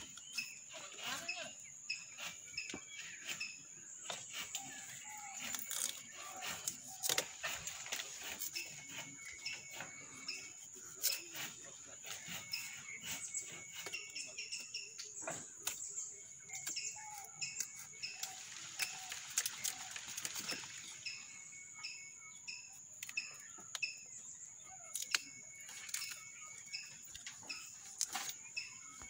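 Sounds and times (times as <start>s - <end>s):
birds chirping: 0.0s - 29.0s
insect droning: 0.0s - 29.0s
rough rubbing: 0.1s - 14.8s
knife scraping and knocking on stalk: 2.0s - 19.8s.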